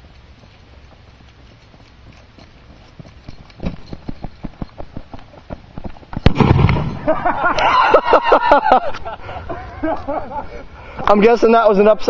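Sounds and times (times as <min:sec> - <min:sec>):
firework bang: 0:06.2 - 0:07.2.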